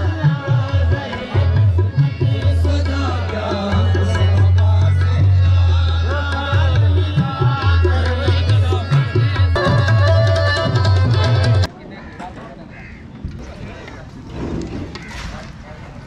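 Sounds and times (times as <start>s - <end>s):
percussion beat: 0.0s - 11.7s.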